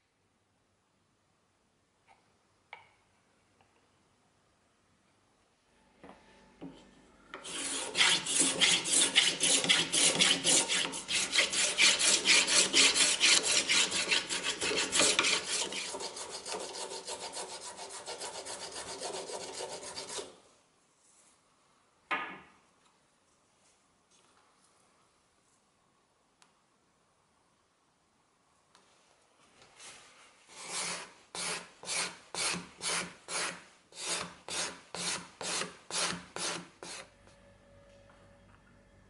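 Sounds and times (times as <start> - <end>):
hand plane shaving wood: 7.4 - 20.3, 30.6 - 37.1.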